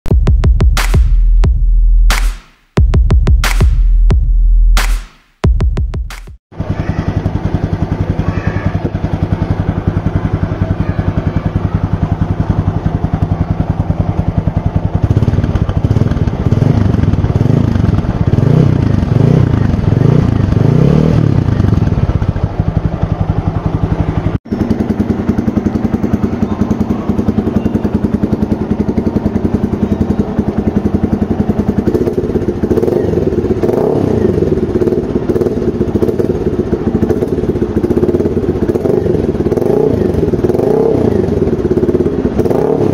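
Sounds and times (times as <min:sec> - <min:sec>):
motorcycle engine revving: 0:05.4 - 0:42.9
motorcycle engine idling: 0:06.6 - 0:42.9.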